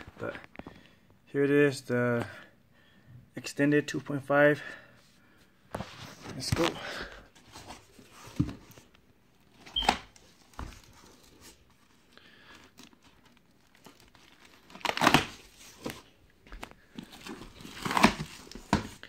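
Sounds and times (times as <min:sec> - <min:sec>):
packaging rustling and crinkling: 0:05.7 - 0:19.0.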